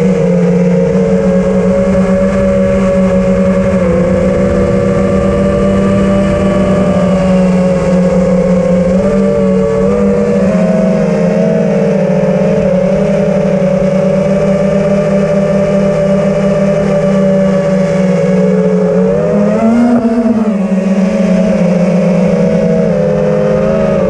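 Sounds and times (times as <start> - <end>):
quadcopter motors droning: 0.0 - 24.0.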